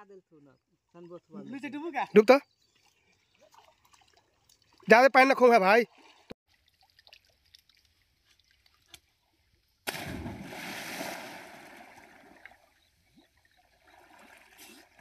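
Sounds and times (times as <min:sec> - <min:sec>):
splash into water: 0:09.8 - 0:12.8, 0:13.4 - 0:15.0.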